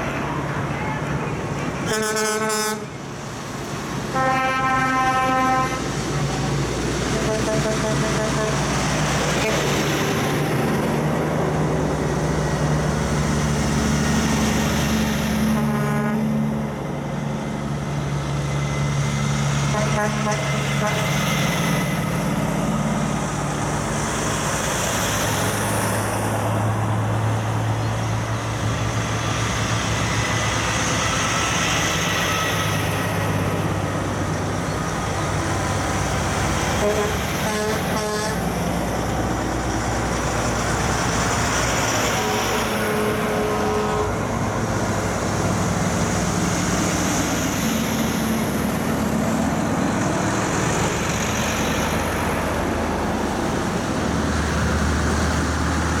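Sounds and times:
diesel truck engines rumbling: 0.0s - 56.0s
truck horn: 1.8s - 3.0s, 4.1s - 6.0s, 7.1s - 8.8s, 9.4s - 9.8s, 15.4s - 16.5s, 19.6s - 21.2s, 36.7s - 38.5s, 42.0s - 44.4s.

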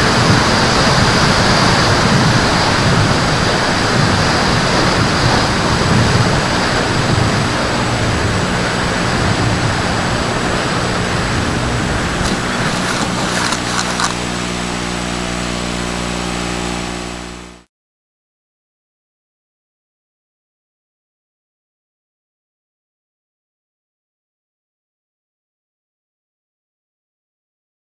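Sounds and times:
wind rushing over camera: 0.0s - 16.2s
faint high whine: 0.0s - 17.7s
steady low hum: 0.0s - 17.7s
clicks and scrapes of landing: 12.1s - 14.5s.

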